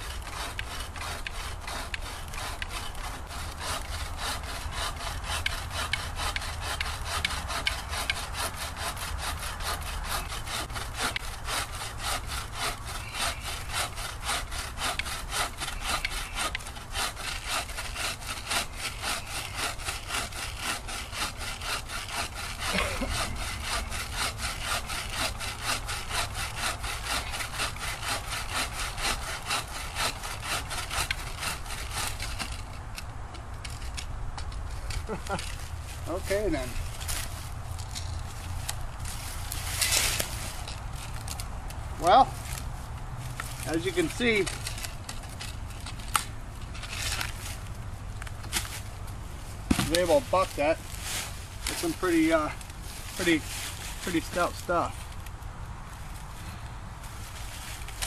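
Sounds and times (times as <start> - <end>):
saw cutting through log: 0.0 - 34.1, 34.7 - 55.3.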